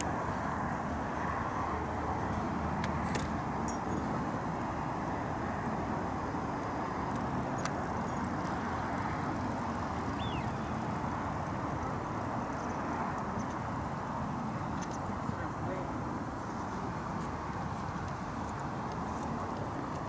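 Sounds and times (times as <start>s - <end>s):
highway traffic rumble: 0.0s - 20.0s.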